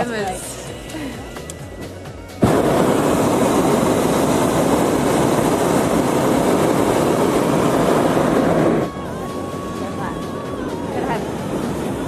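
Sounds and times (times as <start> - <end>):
propane burner blast: 0.0 - 12.0.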